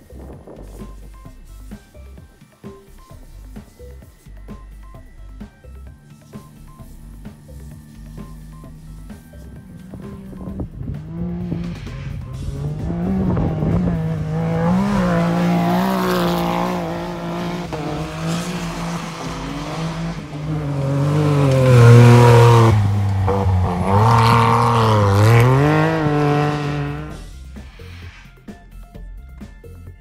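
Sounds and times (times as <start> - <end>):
buggy engines revving hard: 5.9 - 27.8.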